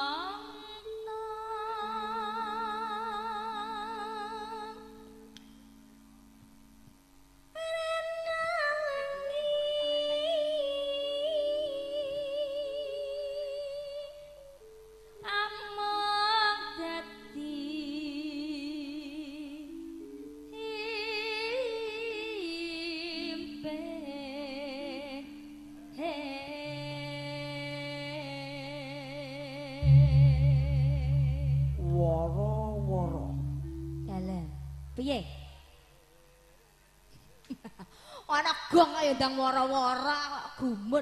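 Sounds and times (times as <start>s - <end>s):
woman singing with vibrato: 7.6s - 14.2s, 26.0s - 35.5s
accompaniment in held notes: 14.1s - 35.3s.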